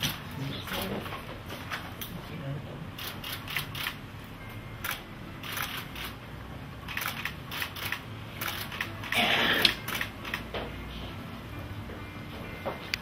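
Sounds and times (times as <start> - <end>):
camera shutters clicking: 3.0 - 4.0, 4.8 - 6.1, 6.9 - 10.5.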